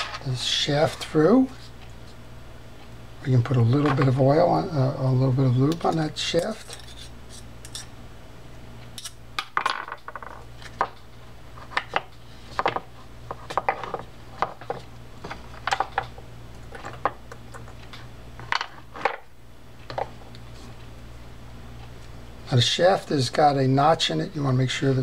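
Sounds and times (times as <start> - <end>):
steady low hum: 0.0 - 25.0.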